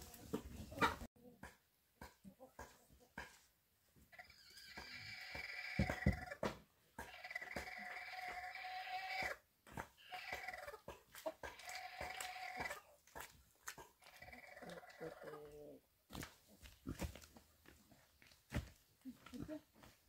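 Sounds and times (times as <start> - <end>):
piglets squealing: 4.2 - 6.3, 7.1 - 9.4.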